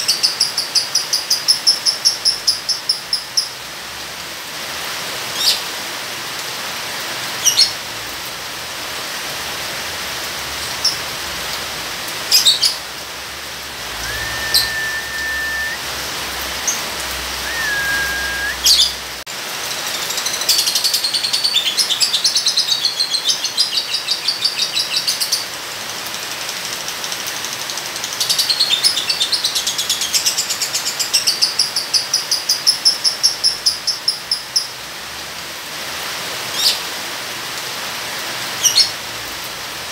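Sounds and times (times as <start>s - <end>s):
rain hiss: 0.0s - 39.9s
bird whistled notes: 13.9s - 15.9s, 17.3s - 19.0s
bird chattering high notes: 14.0s - 15.8s, 17.4s - 18.8s
bird sharp chirps: 14.0s - 15.8s, 17.4s - 19.0s.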